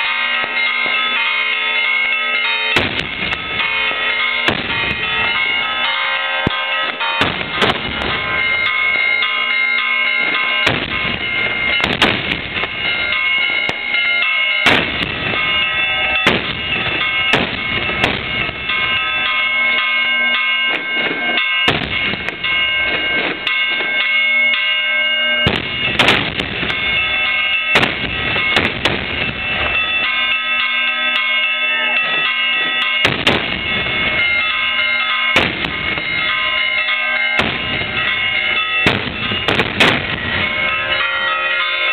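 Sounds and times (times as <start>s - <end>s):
firecrackers exploding: 2.8s - 5.5s, 6.4s - 8.5s, 10.3s - 14.0s, 14.6s - 18.8s, 20.7s - 23.9s, 25.4s - 27.1s, 27.7s - 29.9s, 33.0s - 34.2s, 35.3s - 36.4s, 37.4s - 40.7s.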